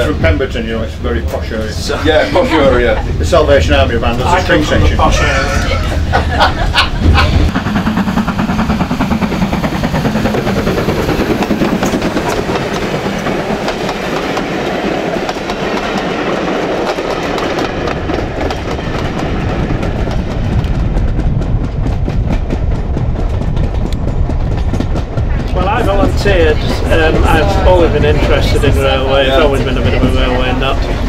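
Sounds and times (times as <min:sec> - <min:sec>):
train wheels clattering over rail joints: 0:06.4 - 0:31.0.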